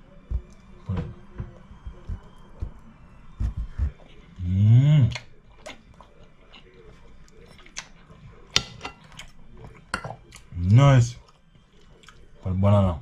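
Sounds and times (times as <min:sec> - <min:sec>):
man chewing food: 0:03.4 - 0:12.4.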